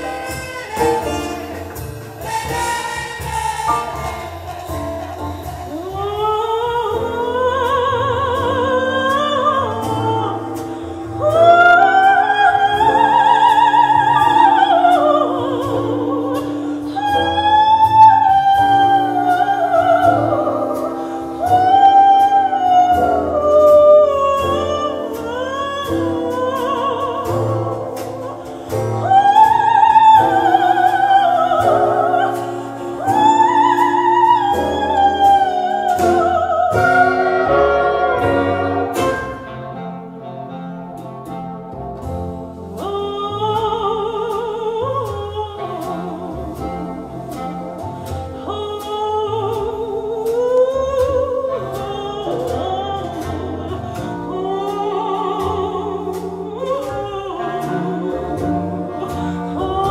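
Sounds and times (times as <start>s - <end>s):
operatic singing: 0.0s - 39.9s
instrumental accompaniment: 0.0s - 59.9s.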